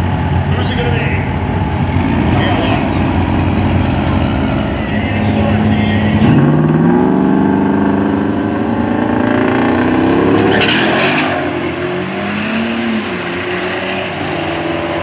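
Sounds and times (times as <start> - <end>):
engines revving at launch: 1.9 - 3.3, 4.2 - 14.8.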